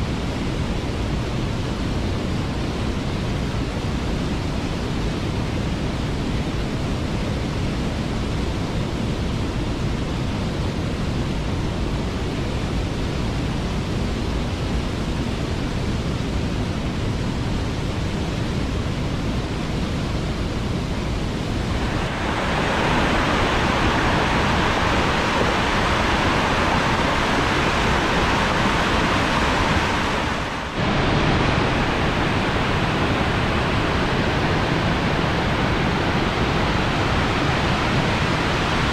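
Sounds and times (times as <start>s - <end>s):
waterfall rushing: 21.5s - 38.9s.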